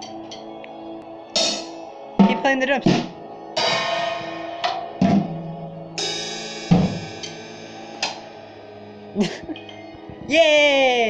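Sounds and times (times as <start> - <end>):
drum hits: 1.4 - 8.3
cymbal crashes: 1.4 - 9.2.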